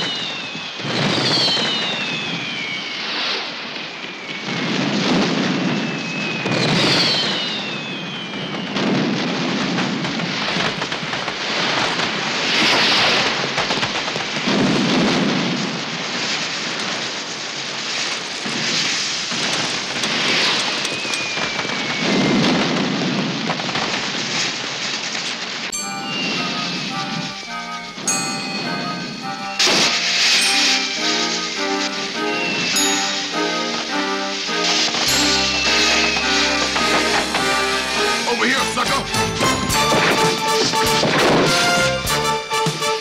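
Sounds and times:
descending firework whistles: 0.0 - 43.0
fireworks booms: 0.0 - 43.0
fireworks crackling and hissing: 0.0 - 43.0.

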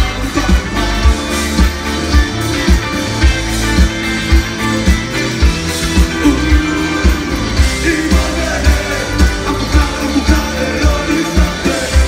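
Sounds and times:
rock band playing: 0.0 - 12.0
person singing: 6.0 - 12.0.

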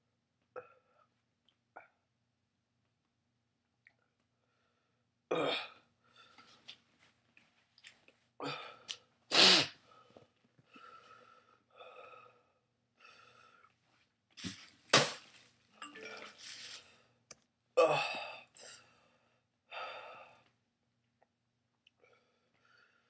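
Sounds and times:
man's sharp bursts of breath: 9.3 - 9.8.

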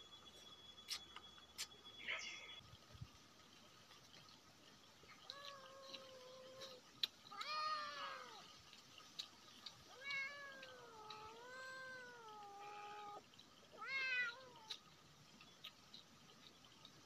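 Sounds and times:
pet animal whining cries: 10.0 - 13.2, 13.8 - 14.8.

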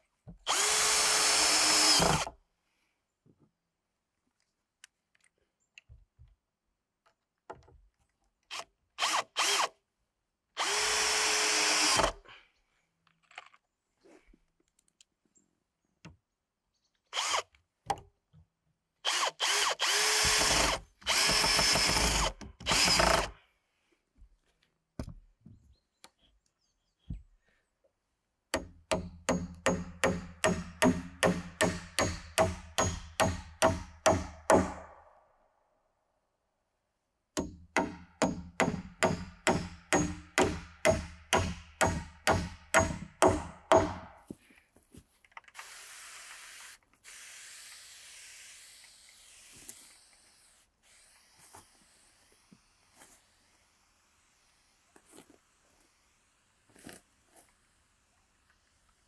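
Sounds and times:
cordless drill driving screws: 0.5 - 2.3, 8.5 - 9.8, 10.6 - 12.2, 17.1 - 17.6, 19.0 - 23.4, 45.5 - 57.5
hammer striking nail: 28.6 - 34.9, 37.4 - 44.2.

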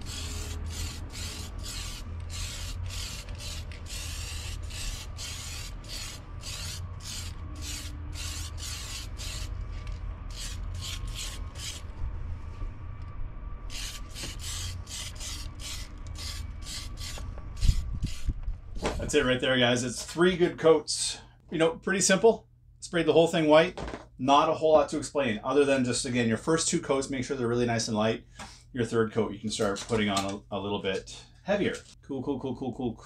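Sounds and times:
spray can hissing in bursts: 0.0 - 9.5.

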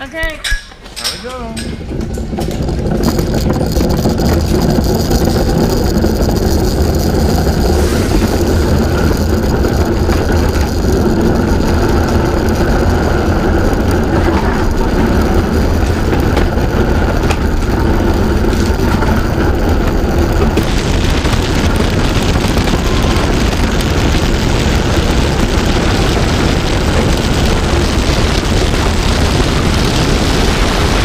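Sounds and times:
bobsled rumbling over ice: 0.0 - 31.0.

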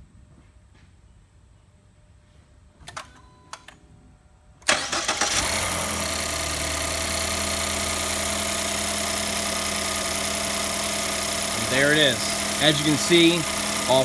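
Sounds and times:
car engine starting and idling: 4.6 - 14.0.

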